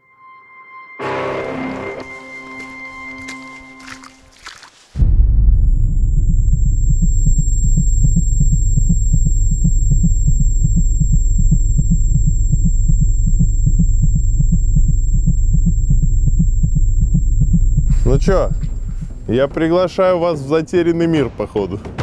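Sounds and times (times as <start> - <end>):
deep pulsing drone: 5.0 - 21.1.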